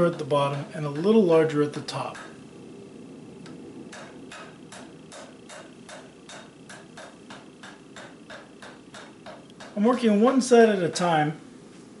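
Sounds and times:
hammer blows on anvil: 3.9 - 9.8.

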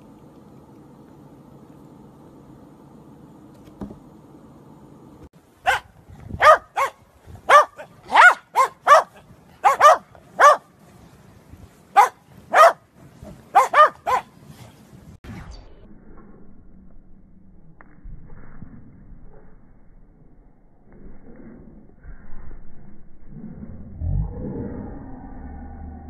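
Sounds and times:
faint steady hum: 0.0 - 22.0
dog barking: 5.7 - 10.7, 12.0 - 12.8, 13.5 - 14.3.

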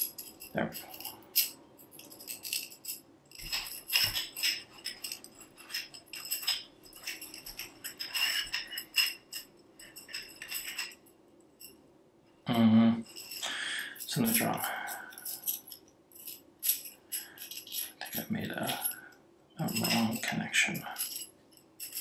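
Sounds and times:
metal tubes clinking and ringing: 0.0 - 11.8, 13.0 - 22.0.

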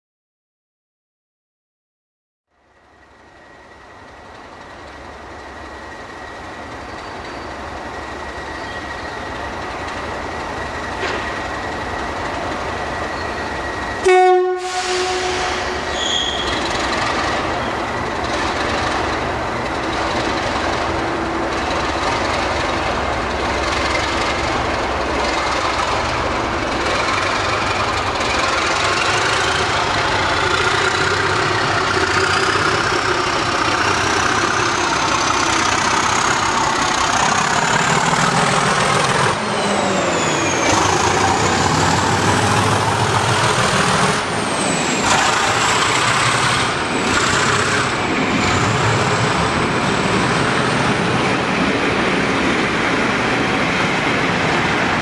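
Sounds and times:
diesel locomotive engines running: 2.5 - 55.0
rising engine whine: 2.6 - 55.0
loud train horn blast: 14.0 - 16.5.

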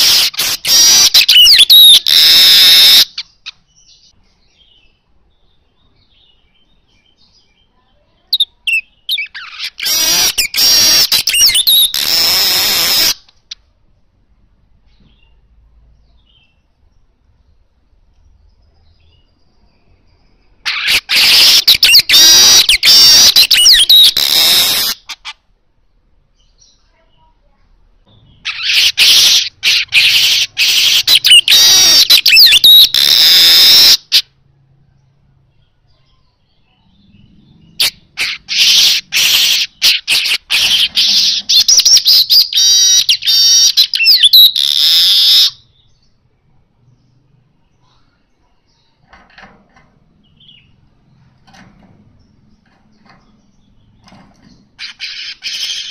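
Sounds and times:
bird slurred whistles: 0.0 - 3.2, 28.6 - 34.2
bird song buzzy chatter: 0.0 - 55.9
bird rattling trills: 20.6 - 25.3, 37.8 - 45.6, 49.0 - 55.9.

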